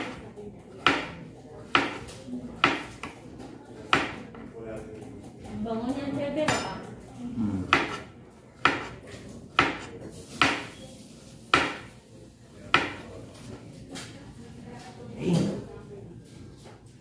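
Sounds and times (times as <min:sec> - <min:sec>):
knife chopping on cutting board: 0:00.0 - 0:03.2, 0:03.9 - 0:04.2, 0:07.7 - 0:10.8, 0:11.5 - 0:11.9, 0:12.7 - 0:13.0.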